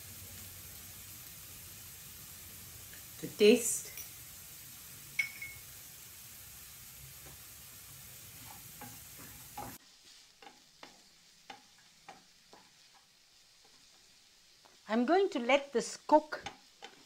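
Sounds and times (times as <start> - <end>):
faint sizzle: 0.0 - 17.0
wooden spatula scraping a pan: 8.4 - 14.8.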